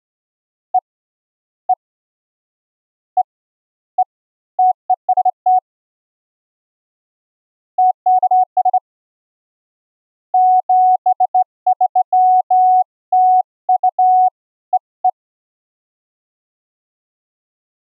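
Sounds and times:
morse code sine tone: 0:10.4 - 0:14.4.

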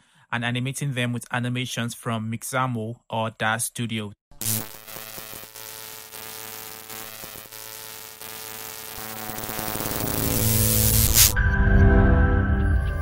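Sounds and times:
electric buzzing crackling drone: 0:04.4 - 0:11.4.

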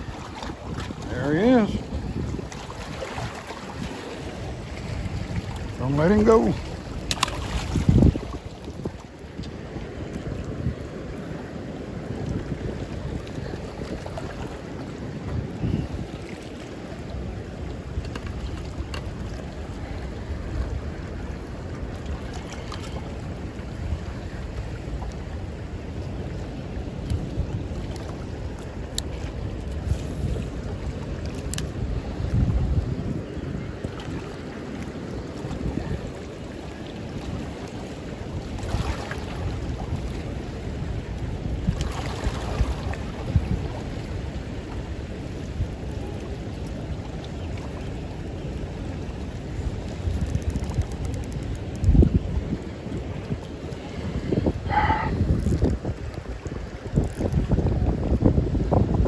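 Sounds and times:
water rushing from spillway: 0:00.0 - 0:18.0
water rushing: 0:00.0 - 0:59.0
wind noise on microphone: 0:00.0 - 0:59.0.

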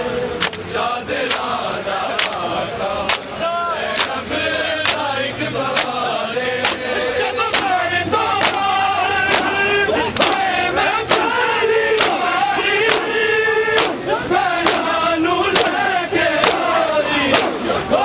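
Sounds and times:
men chanting together: 0:00.0 - 0:18.0
hands slapping chests: 0:02.2 - 0:02.4, 0:03.1 - 0:03.3, 0:04.0 - 0:04.2, 0:04.8 - 0:05.1, 0:05.7 - 0:06.0, 0:06.6 - 0:06.9, 0:07.5 - 0:07.7, 0:08.4 - 0:08.6, 0:09.3 - 0:09.5, 0:10.2 - 0:10.4, 0:12.0 - 0:12.2, 0:13.8 - 0:14.0, 0:16.4 - 0:16.7.

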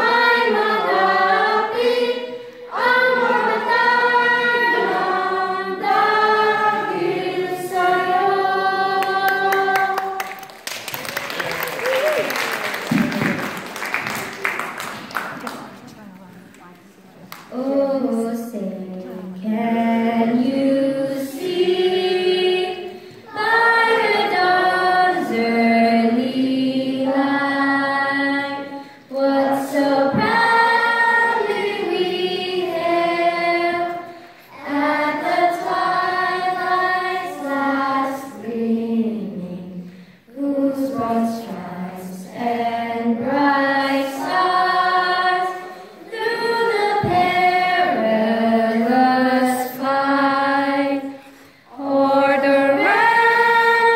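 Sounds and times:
girl singing unaccompanied: 0:17.5 - 0:53.9.

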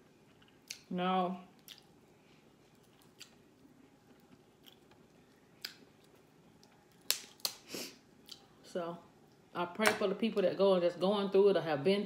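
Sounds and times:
crab shell cracking: 0:06.9 - 0:07.6.

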